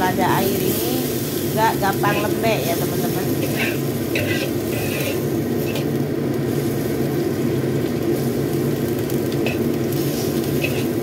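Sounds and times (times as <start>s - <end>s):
vegetables sizzling in a wok: 0.0s - 11.0s
metal spatula scraping wok: 1.2s - 5.9s, 9.4s - 11.0s.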